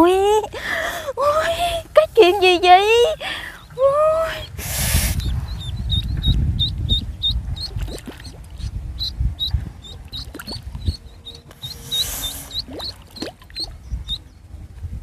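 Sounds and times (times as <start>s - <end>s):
duckling peeping: 2.8s - 14.5s
low rumble: 3.2s - 15.0s.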